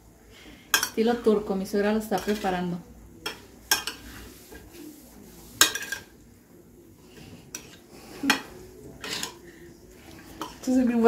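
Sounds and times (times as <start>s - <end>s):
metal spoon clinking ceramic bowl: 3.2s - 4.0s.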